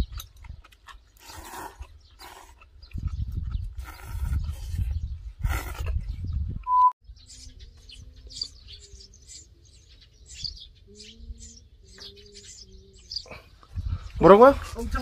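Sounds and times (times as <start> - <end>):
small birds chirping: 0.0 - 15.0
electronic test-tone beep: 6.6 - 7.0.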